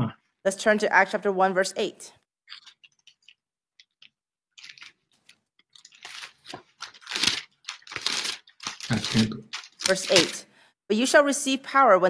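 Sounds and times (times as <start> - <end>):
book pages rustling: 2.5 - 10.3.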